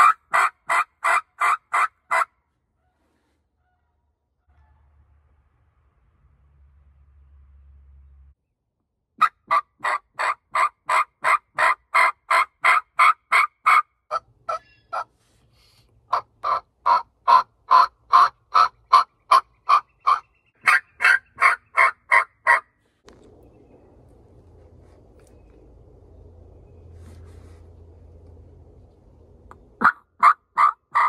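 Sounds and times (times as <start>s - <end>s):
turkey yelping: 0.0s - 2.3s, 9.2s - 15.2s, 16.1s - 22.7s, 29.8s - 31.0s.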